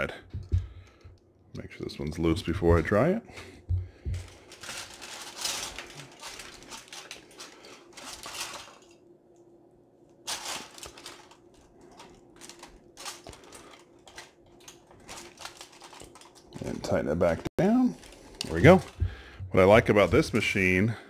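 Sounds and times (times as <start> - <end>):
aluminium foil crinkling: 4.2 - 9.0, 10.2 - 17.0, 17.8 - 19.1.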